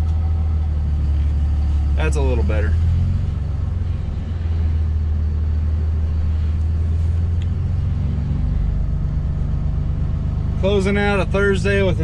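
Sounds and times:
diesel engine rumbling: 0:00.0 - 0:12.0.

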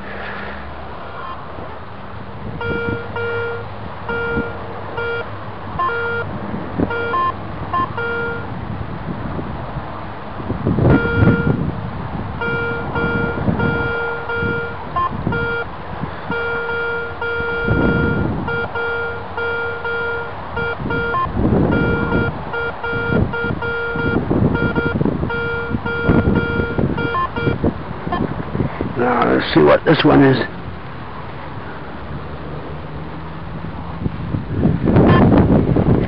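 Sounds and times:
higher blips: 0:02.6 - 0:06.3, 0:06.9 - 0:08.5, 0:10.9 - 0:11.6, 0:12.4 - 0:15.7, 0:16.3 - 0:28.3
metal detector buzzy beeps: 0:02.6 - 0:06.3, 0:06.9 - 0:08.5, 0:10.9 - 0:11.6, 0:12.4 - 0:15.7, 0:16.3 - 0:28.2.

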